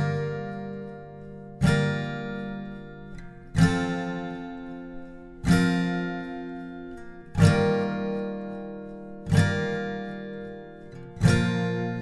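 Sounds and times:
acoustic guitar strumming chords: 0:00.0 - 0:12.0.

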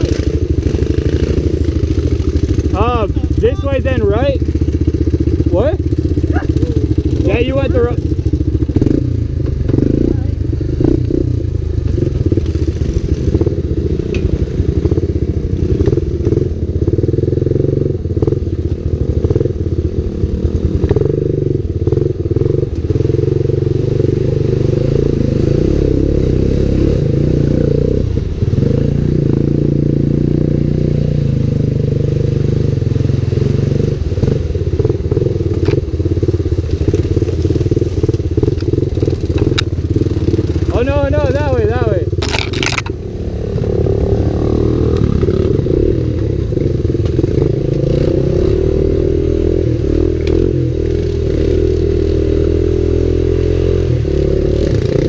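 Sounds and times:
dirt bike engine revving: 0:00.0 - 0:18.4, 0:19.1 - 0:55.0
knocks and clatter of bike: 0:11.9 - 0:17.2, 0:20.2 - 0:23.0, 0:34.8 - 0:41.5, 0:42.1 - 0:43.0
water splashing through mud: 0:32.6 - 0:40.7, 0:42.0 - 0:48.3.

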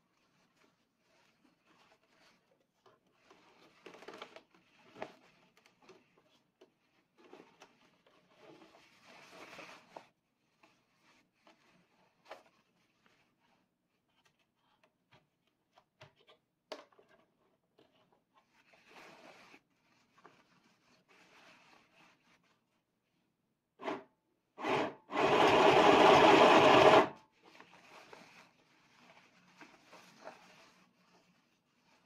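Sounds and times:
fabric rustling: 0:18.4 - 0:23.2, 0:27.3 - 0:32.0
electric sewing machine running: 0:24.6 - 0:27.2.

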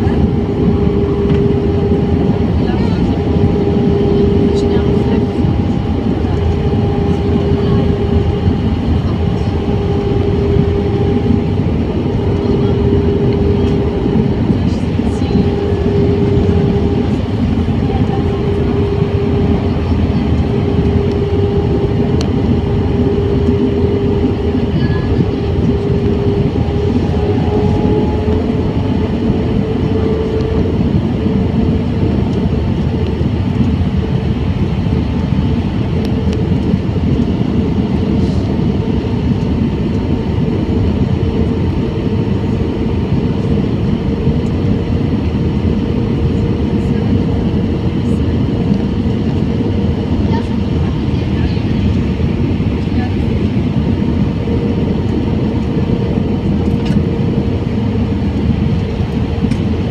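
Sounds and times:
jet engines and airflow roar: 0:00.0 - 0:59.9.

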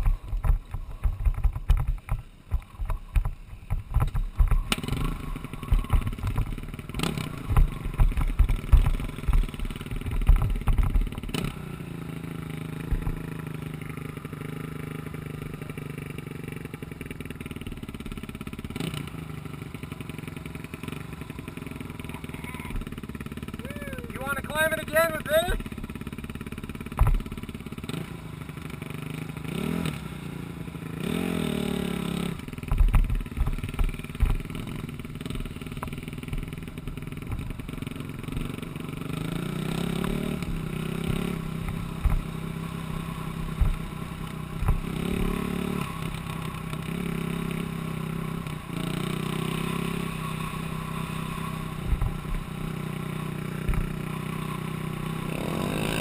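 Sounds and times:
knocks and clatter from bumps: 0:00.0 - 0:05.0, 0:05.7 - 0:11.4, 0:26.9 - 0:27.4
atv engine revving: 0:00.0 - 0:56.0.

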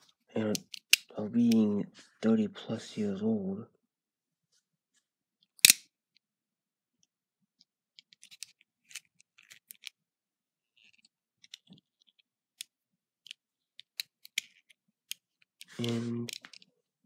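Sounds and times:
switchblade snapping open: 0:05.6 - 0:05.8.

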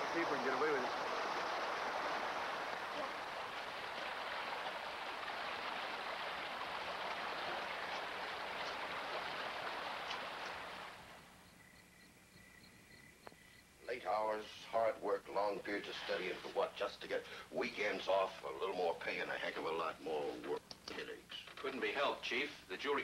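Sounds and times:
water rushing: 0:00.0 - 0:11.4, 0:14.1 - 0:18.7.

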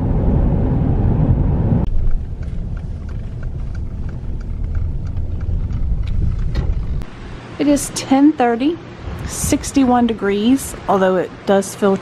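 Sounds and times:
car road noise rumble: 0:00.0 - 0:07.9.

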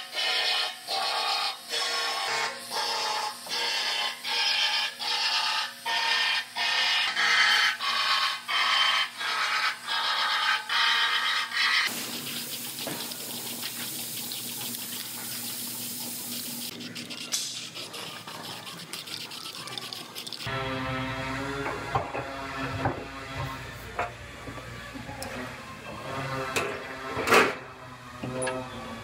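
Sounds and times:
aerosol spray hissing: 0:11.9 - 0:16.7.

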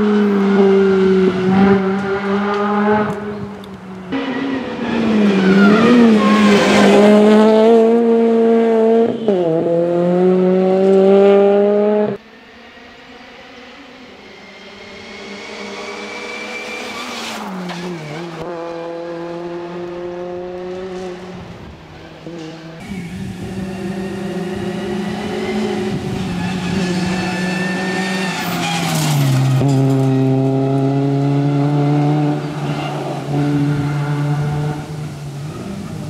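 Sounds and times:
car engine revving at full throttle: 0:00.0 - 0:05.0, 0:05.7 - 0:17.2, 0:22.6 - 0:28.3, 0:29.3 - 0:36.0.

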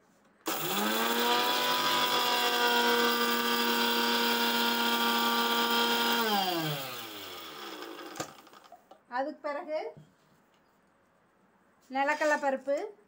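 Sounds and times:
mixer grinder motor grinding spices: 0:00.5 - 0:08.7.

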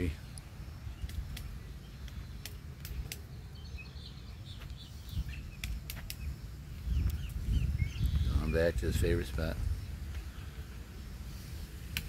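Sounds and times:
faint bird chirps: 0:00.0 - 0:11.8
woodpecker tapping on trunk: 0:01.0 - 0:03.2
wind rumble on microphone: 0:02.8 - 0:12.0.

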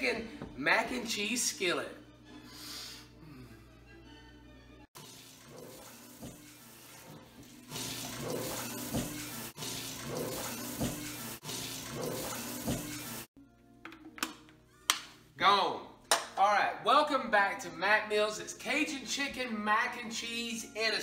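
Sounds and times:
faucet running into a sink: 0:05.0 - 0:13.3
hands washing under water: 0:05.0 - 0:13.3.

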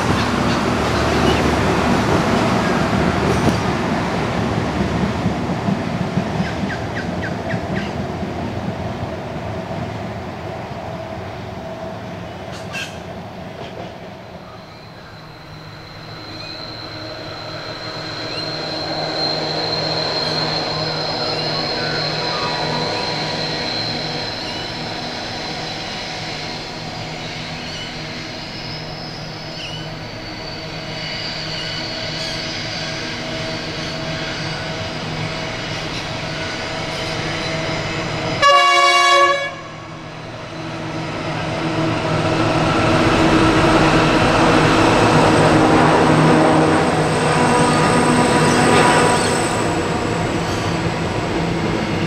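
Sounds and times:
locomotive engine drone: 0:00.0 - 0:52.0
rumble of wheels on rail: 0:00.0 - 0:52.0
locomotive horn blast: 0:38.4 - 0:40.0.

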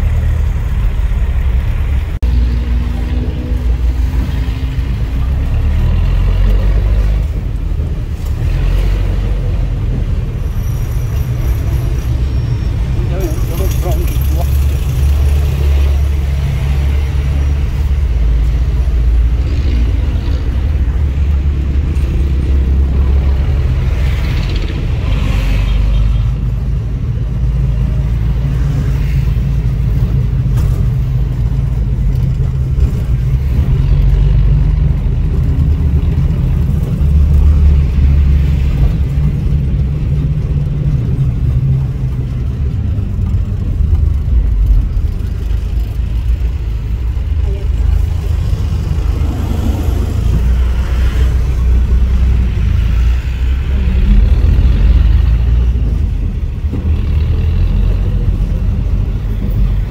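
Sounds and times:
diesel engine rumbling: 0:00.0 - 0:59.9
road noise: 0:00.0 - 0:59.9.

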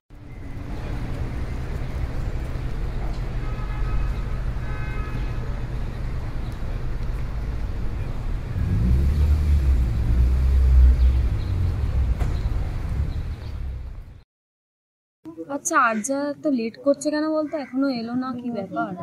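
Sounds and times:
bus engine and road rumble: 0:00.1 - 0:14.2.

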